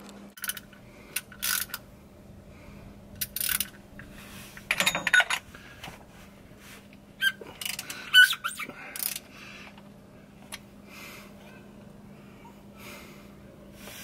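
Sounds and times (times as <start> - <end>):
ratchet clicks: 0.4 - 1.8, 3.2 - 3.8
metal clinking on metal: 4.7 - 5.4.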